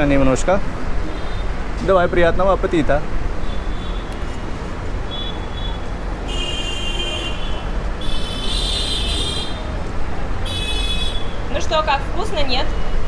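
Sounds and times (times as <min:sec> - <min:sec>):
vehicle horns honking: 0:01.1 - 0:01.6, 0:03.4 - 0:09.7, 0:10.4 - 0:11.5.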